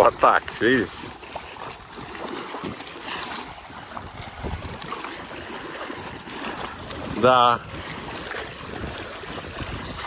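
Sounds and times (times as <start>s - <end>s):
water splashing and trickling: 0.0s - 10.0s.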